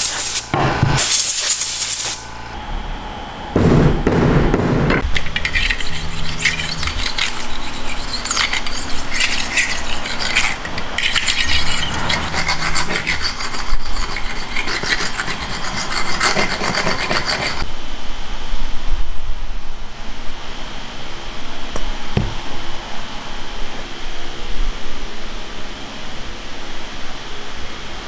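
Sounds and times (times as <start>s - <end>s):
tool scraping metal clamp: 5.1s - 17.6s.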